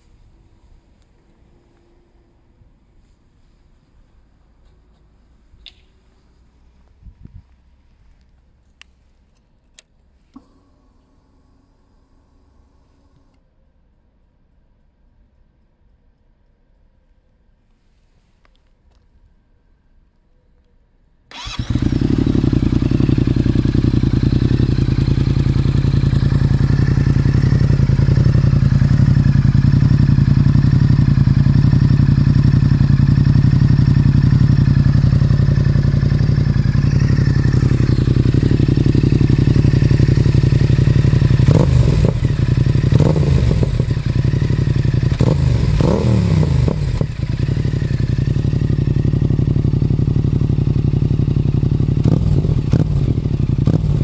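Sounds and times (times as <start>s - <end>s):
engine throttle blips: 21.3s - 54.0s
motorcycle engine starting and idling: 21.3s - 54.0s.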